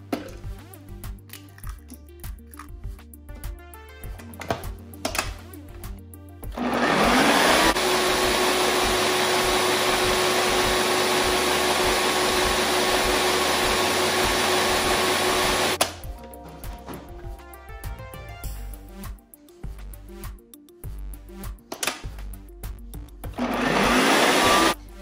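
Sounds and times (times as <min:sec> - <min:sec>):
background music with a beat: 0:00.0 - 0:06.6, 0:07.7 - 0:25.0
food processor motor running: 0:06.5 - 0:15.8, 0:23.4 - 0:24.8.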